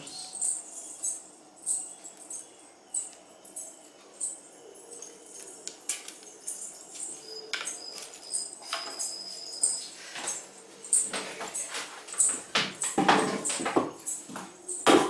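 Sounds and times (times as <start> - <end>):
thin high squeak: 6.2 - 10.5.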